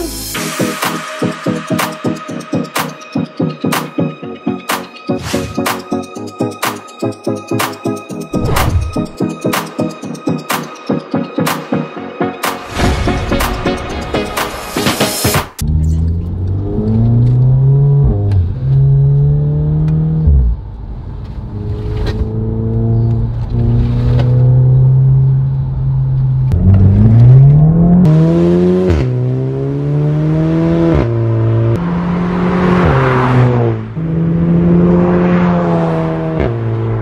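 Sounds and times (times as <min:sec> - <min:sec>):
car engine shifting through gears: 0:15.6 - 0:37.0.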